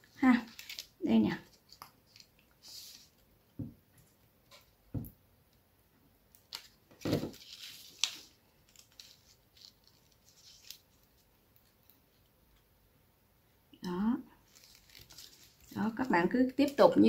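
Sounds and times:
paper rustling: 0:00.0 - 0:03.4, 0:06.5 - 0:12.2, 0:14.4 - 0:16.0.

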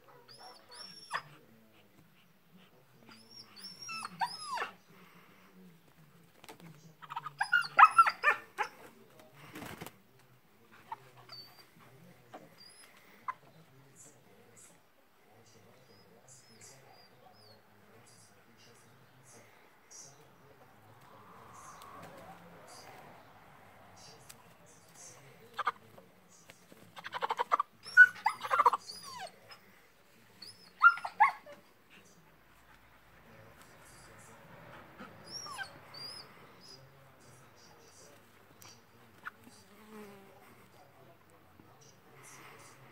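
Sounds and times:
dog whimpering: 0:00.2 - 0:01.4, 0:03.1 - 0:04.8, 0:07.1 - 0:08.7, 0:27.0 - 0:29.6, 0:30.4 - 0:31.6, 0:35.0 - 0:36.9.

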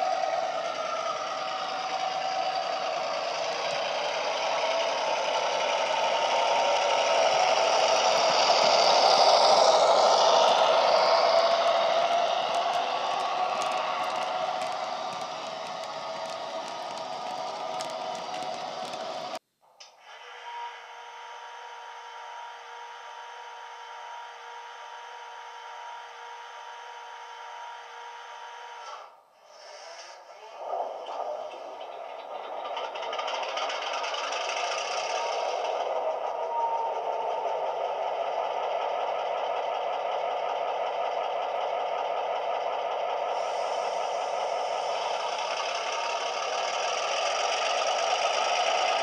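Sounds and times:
loud sound cutting off: 0:00.0 - 0:19.4, 0:32.6 - 0:49.0
model diesel engine sound: 0:00.0 - 0:19.4, 0:20.1 - 0:49.0.

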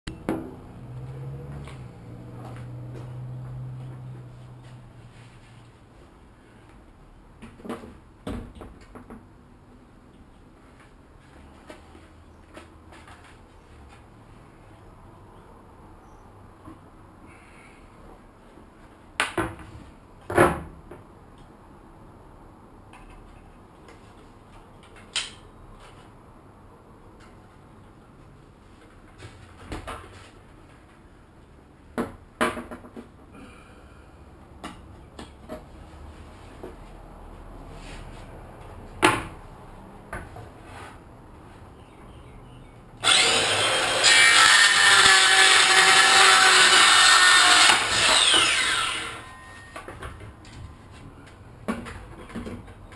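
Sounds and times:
circular saw cutting wood: 0:43.0 - 0:49.7.

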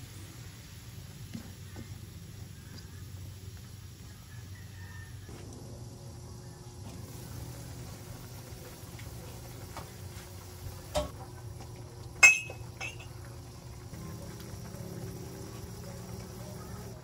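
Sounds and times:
low steady hum: 0:00.0 - 0:17.0
cookware clinking: 0:12.2 - 0:13.2.

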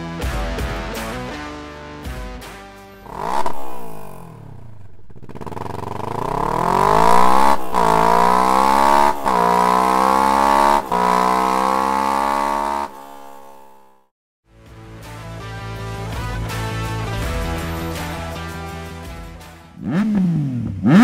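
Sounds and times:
motorcycle engine accelerating: 0:03.0 - 0:14.1, 0:19.0 - 0:21.0.

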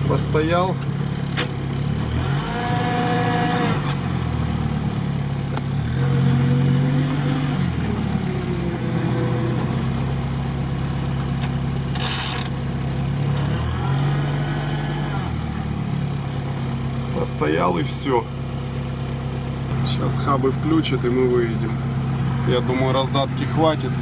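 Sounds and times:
engine revving: 0:00.0 - 0:24.0.

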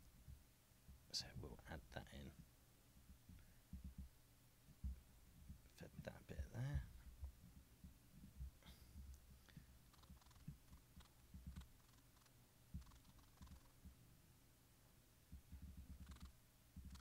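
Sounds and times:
faint low thuds: 0:00.0 - 0:11.8, 0:12.7 - 0:12.9.

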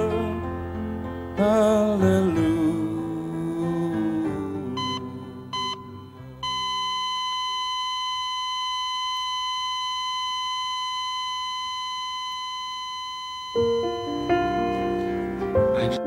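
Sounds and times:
heart monitor flatline tone: 0:04.8 - 0:14.9.

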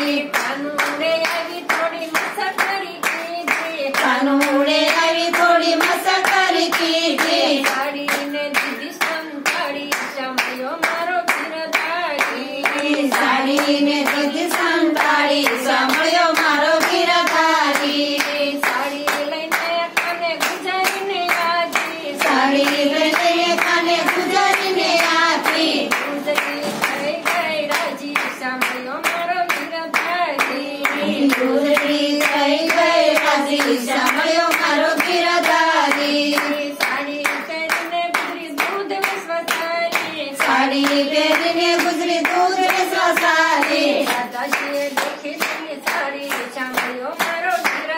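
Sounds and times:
rhythmic hand claps: 0:00.0 - 0:47.9
women singing together: 0:00.0 - 0:47.9.

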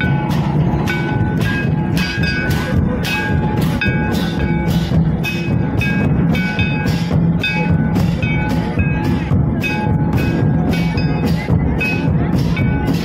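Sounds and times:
drums beating steady rhythm: 0:00.0 - 0:13.0
ringing high notes: 0:00.0 - 0:13.0.

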